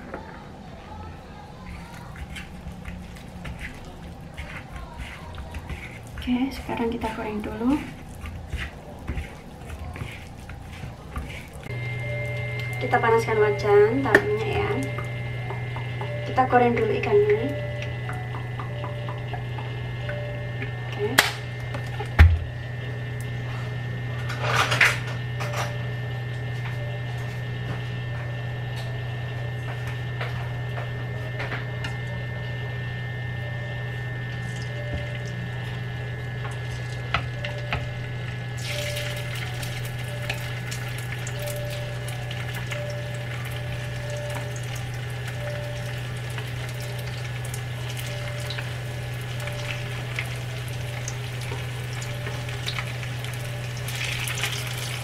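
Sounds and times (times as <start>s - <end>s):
steady hum: 0.0s - 55.0s
hot oil sizzling: 38.2s - 55.0s.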